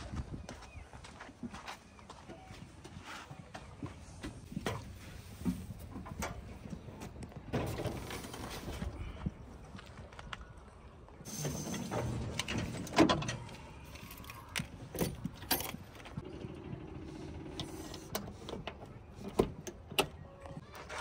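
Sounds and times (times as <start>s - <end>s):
tractor engine running: 15.1s - 19.8s.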